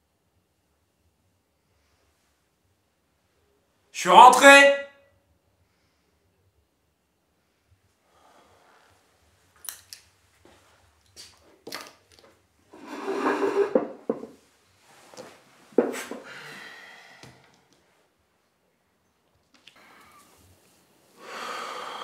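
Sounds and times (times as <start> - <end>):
chair scraping on tiled floor: 12.7 - 14.4
footsteps: 12.8 - 14.4.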